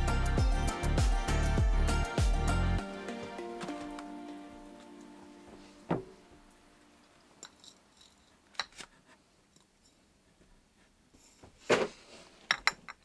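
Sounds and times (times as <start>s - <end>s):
small objects clicking and knocking: 7.4s - 8.9s.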